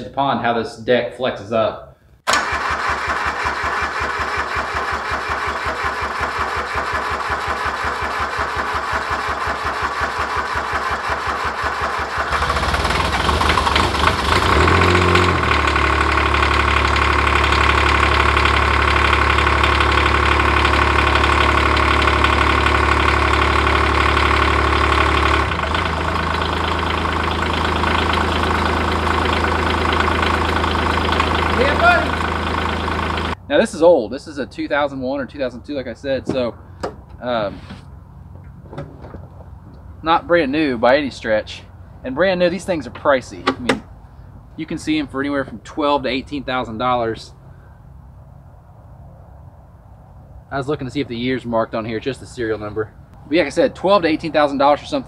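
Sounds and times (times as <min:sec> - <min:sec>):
diesel engine cranking on starter: 0:02.2 - 0:33.4
diesel engine running: 0:02.3 - 0:48.7, 0:49.8 - 0:55.0.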